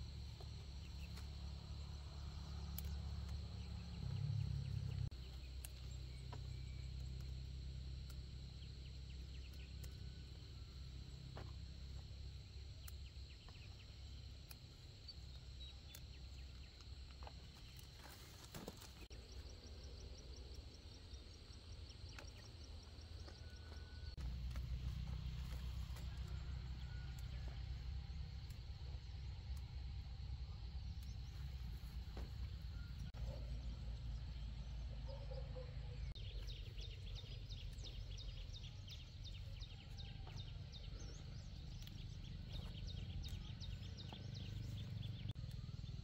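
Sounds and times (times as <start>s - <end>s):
insects droning: 0.0s - 46.0s
plants snapping and rustling: 16.8s - 19.1s.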